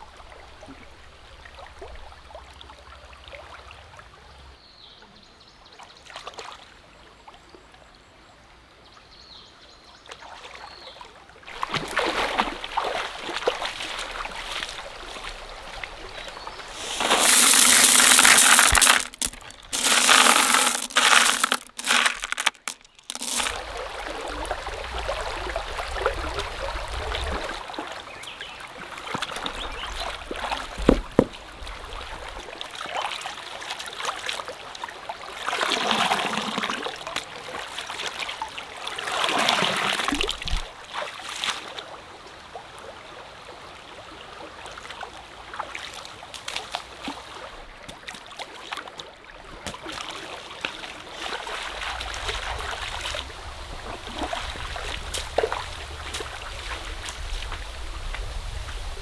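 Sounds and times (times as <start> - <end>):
stream water trickling: 0.0 - 59.0
water splashing: 11.5 - 27.9, 49.4 - 58.4.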